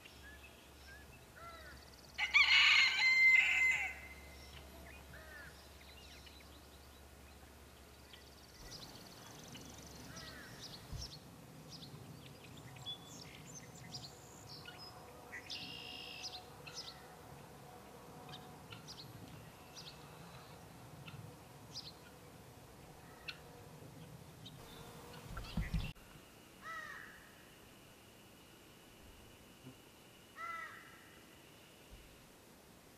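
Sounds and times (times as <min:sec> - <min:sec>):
small birds chirping: 0:04.2 - 0:17.0, 0:23.1 - 0:26.0.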